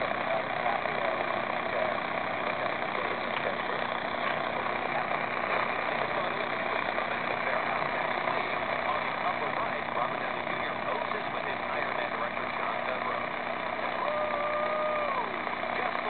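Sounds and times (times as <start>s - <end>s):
static hiss from small speaker: 0.0s - 16.0s.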